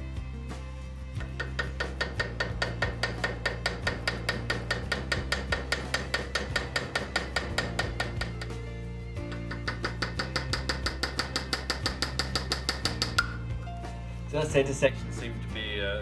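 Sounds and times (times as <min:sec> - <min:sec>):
mallet tapping metal tool: 0:01.2 - 0:13.6.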